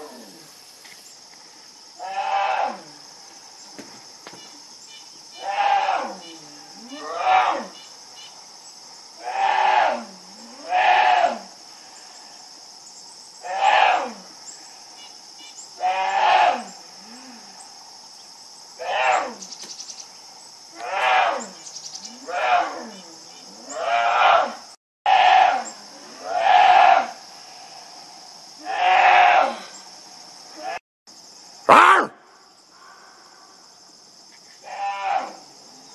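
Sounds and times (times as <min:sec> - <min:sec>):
insect buzz: 0:00.0 - 0:35.9
bear cub bellowing: 0:31.7 - 0:32.2.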